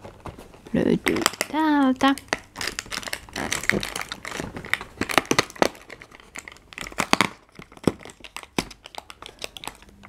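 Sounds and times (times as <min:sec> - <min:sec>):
cardboard crinkling and tearing: 0:02.3 - 0:09.8.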